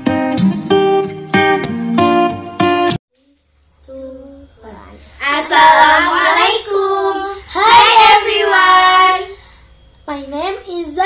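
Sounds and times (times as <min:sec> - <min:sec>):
girls singing together: 0:05.2 - 0:09.4.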